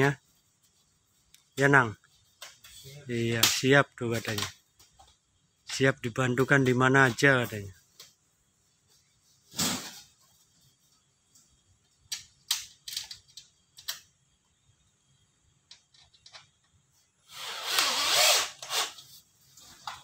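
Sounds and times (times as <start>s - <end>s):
power drill into sheet metal: 17.2s - 19.0s.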